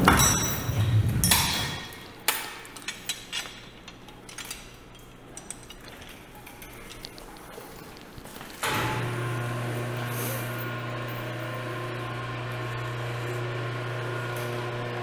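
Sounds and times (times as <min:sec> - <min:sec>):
metal chain and hooks clinking: 0:00.0 - 0:08.2.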